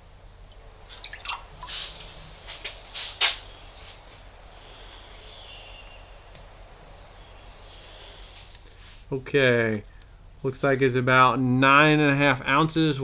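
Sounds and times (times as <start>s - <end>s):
faint steady hiss: 0.0s - 13.0s
water splashing and dripping: 0.5s - 1.9s.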